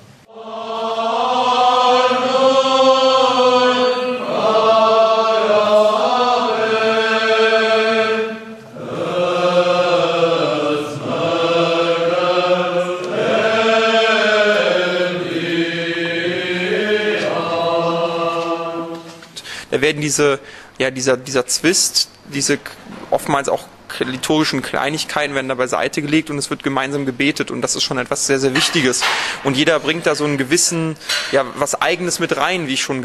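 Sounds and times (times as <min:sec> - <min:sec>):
men chanting in unison: 0:00.3 - 0:19.2.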